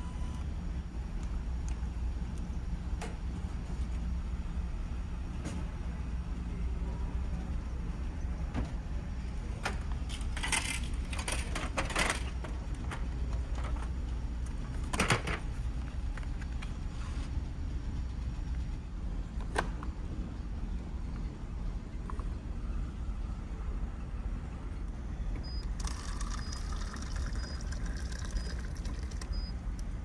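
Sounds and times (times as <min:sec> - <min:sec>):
vending machine flap rattling: 0:09.6 - 0:12.5.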